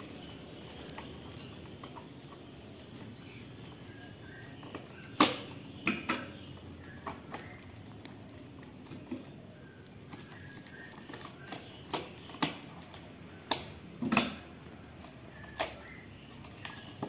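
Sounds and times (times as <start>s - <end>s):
knife cutting taped parcel: 14.7s - 17.0s.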